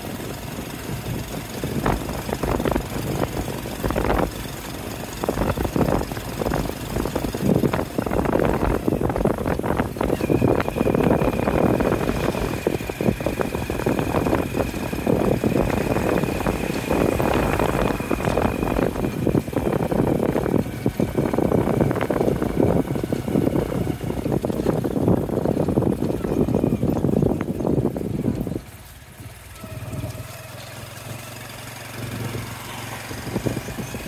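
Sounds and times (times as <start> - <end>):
motorcycle engine running: 0.0 - 34.0
road noise: 0.0 - 34.0.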